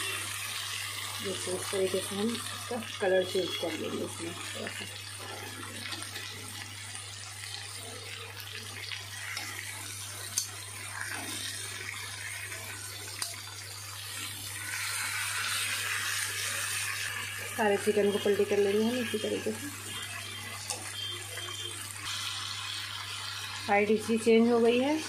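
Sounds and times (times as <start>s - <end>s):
chicken sizzling in a pan: 0.0s - 25.0s.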